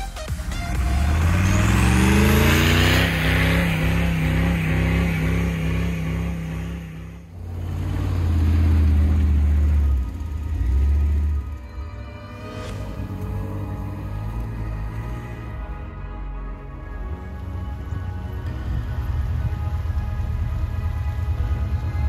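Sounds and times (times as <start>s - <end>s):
second engine running under load: 0.3s - 22.0s
engine revving under load: 0.4s - 15.9s.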